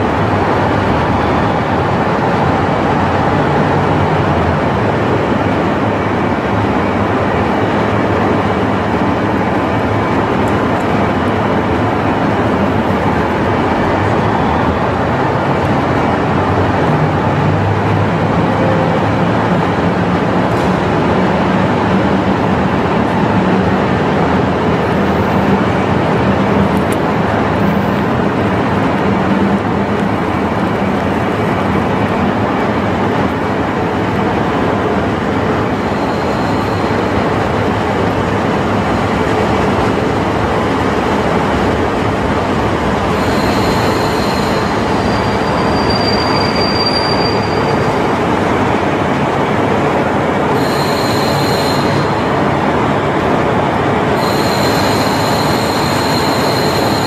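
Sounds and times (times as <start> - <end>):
railcar engine and wheels rumbling: 0.0 - 57.0
brakes squealing: 35.4 - 38.2, 40.9 - 48.6, 50.5 - 52.6, 54.1 - 57.0.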